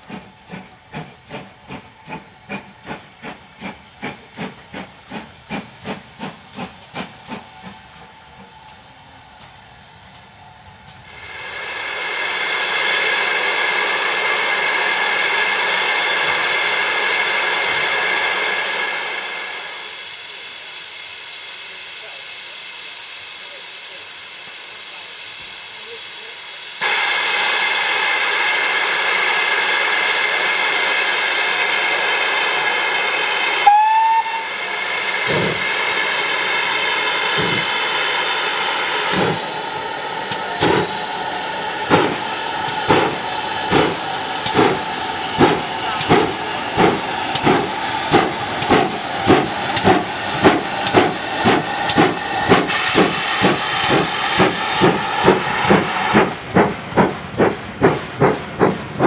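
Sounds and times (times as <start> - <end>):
locomotive exhaust chuffs: 0.0 - 59.0
steam hissing: 0.0 - 59.0
steam whistle: 33.4 - 34.8.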